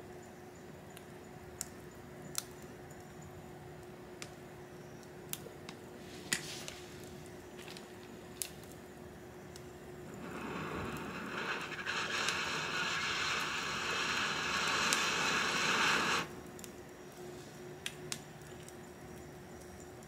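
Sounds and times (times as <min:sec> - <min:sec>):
wood fire crackling: 0:00.9 - 0:04.4, 0:05.1 - 0:20.0
fire hissing: 0:05.9 - 0:18.8.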